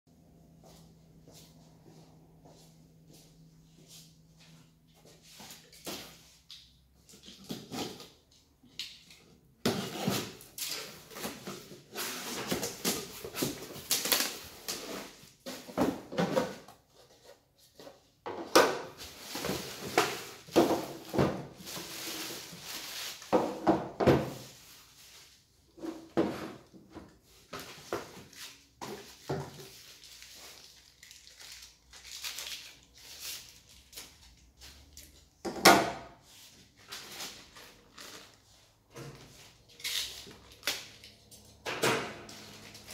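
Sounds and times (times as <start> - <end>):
plastic and cardboard rustling: 9.6 - 35.5, 36.2 - 41.6, 42.3 - 42.9.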